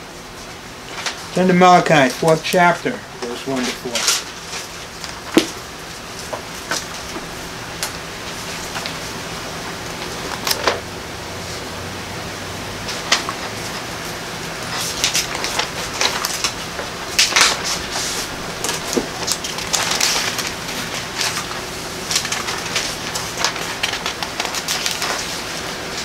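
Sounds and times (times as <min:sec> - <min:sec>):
book pages rustling: 0:03.2 - 0:09.3, 0:12.9 - 0:13.9, 0:14.6 - 0:26.0.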